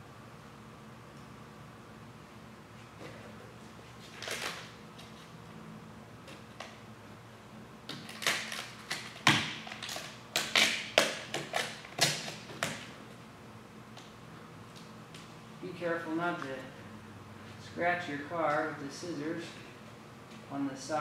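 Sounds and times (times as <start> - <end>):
scissors snipping vinyl film: 7.9 - 12.8.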